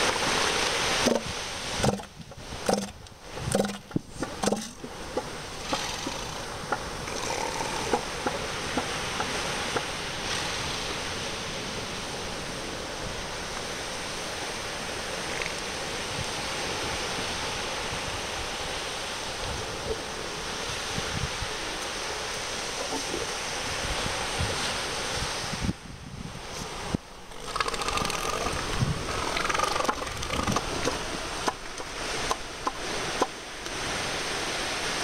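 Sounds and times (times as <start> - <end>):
surf hiss: 0.0 - 35.0
elephant seal deep pulsing calls: 5.6 - 8.9.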